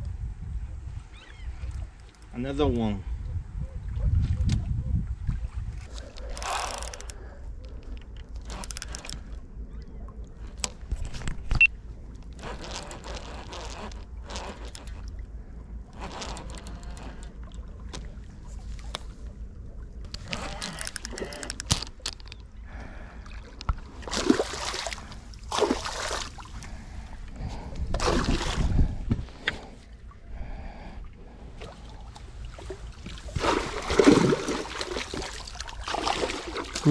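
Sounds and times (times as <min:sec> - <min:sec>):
wind rumbling on microphone: 0:00.0 - 0:22.8, 0:26.2 - 0:36.9
water splashing against rocks: 0:23.6 - 0:26.7, 0:27.8 - 0:29.8, 0:31.6 - 0:36.9.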